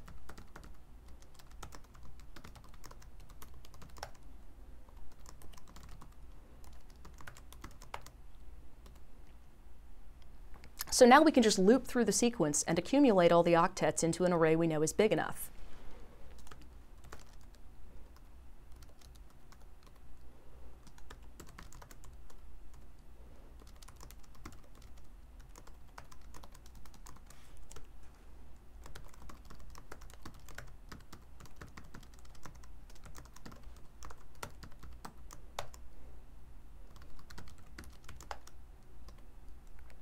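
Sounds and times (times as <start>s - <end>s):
typing on computer keyboard: 0.0s - 4.3s, 4.9s - 8.2s, 16.4s - 20.0s, 20.8s - 23.0s, 23.6s - 27.9s, 28.8s - 35.8s, 36.9s - 40.0s
low steady hum: 0.0s - 40.0s.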